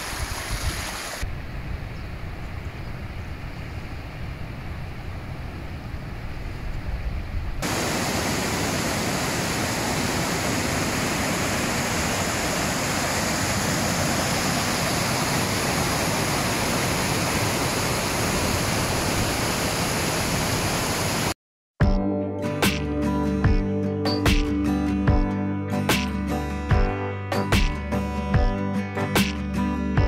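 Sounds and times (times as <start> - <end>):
rushing water: 0.0 - 1.4, 7.6 - 21.4.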